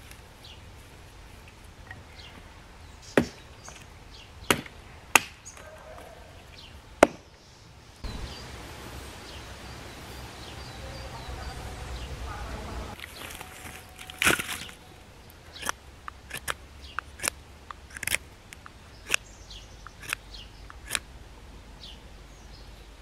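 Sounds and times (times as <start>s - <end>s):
outdoor background noise: 0.0s - 23.0s
hatchet chopping branch: 3.1s - 6.1s, 7.0s - 7.4s, 13.0s - 14.8s, 15.5s - 21.0s.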